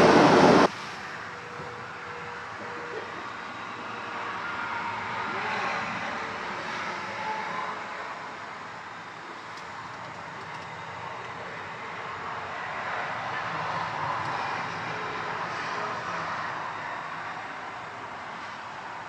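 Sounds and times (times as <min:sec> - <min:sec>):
truck engine running: 0:00.0 - 0:03.8.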